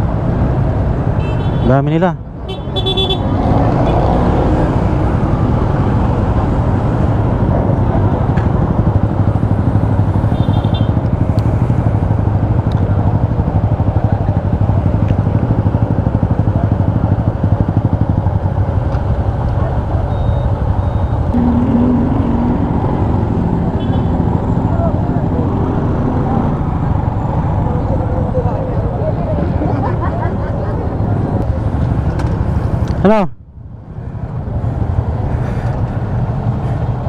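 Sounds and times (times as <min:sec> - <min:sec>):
other motorcycles: 0:00.0 - 0:37.0
short high beep: 0:20.1 - 0:21.2.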